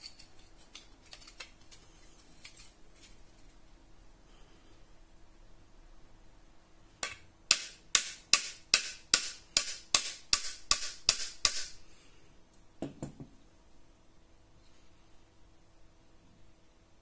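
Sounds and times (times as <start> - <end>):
hammer tapping a nail: 7.0 - 11.7.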